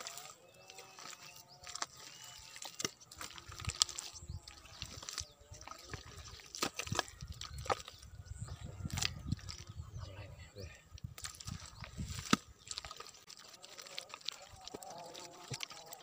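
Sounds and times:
wet mud squelching: 0.0s - 16.0s.

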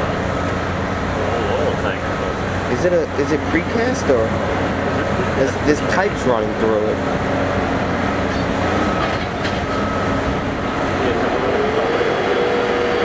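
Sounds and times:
excavator engine and hydraulics: 0.0s - 13.0s.

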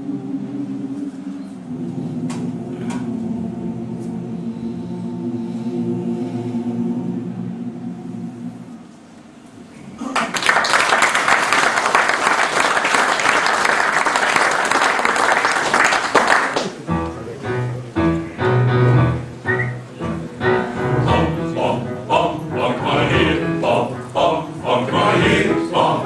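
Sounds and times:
audience applauding: 10.0s - 16.9s
male voice choir singing: 20.8s - 26.0s.

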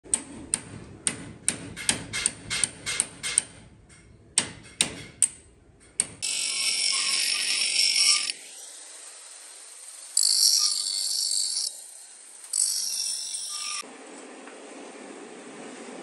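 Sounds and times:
hammer striking steel punch: 0.1s - 6.2s.

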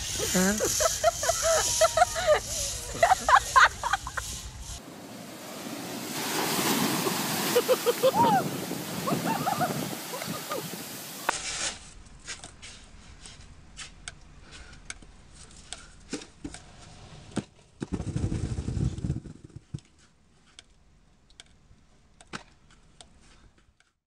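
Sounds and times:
snow shovel scraping concrete: 0.0s - 4.6s, 9.0s - 14.0s.

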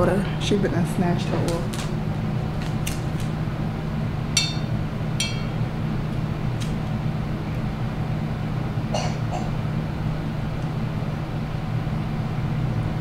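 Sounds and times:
low hum: 3.4s - 13.0s.

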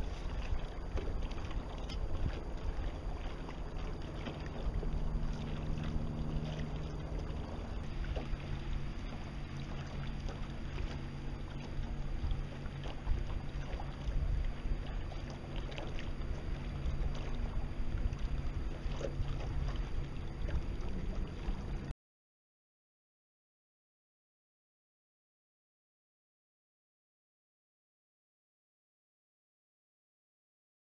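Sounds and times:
low wind rumble: 0.0s - 21.9s
water splashing against hull: 0.0s - 21.9s.

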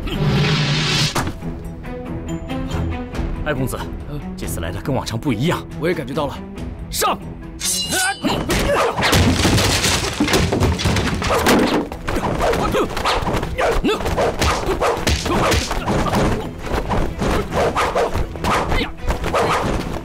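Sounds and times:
weapon swishes: 11.3s - 20.0s
fighters grunting and yelling: 12.5s - 16.5s.

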